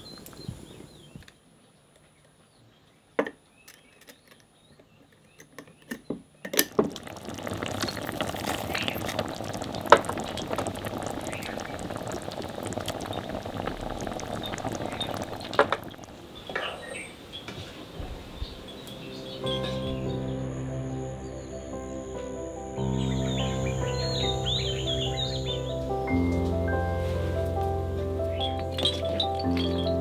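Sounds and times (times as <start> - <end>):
tomatoes sizzling in hot oil: 6.7 - 16.6.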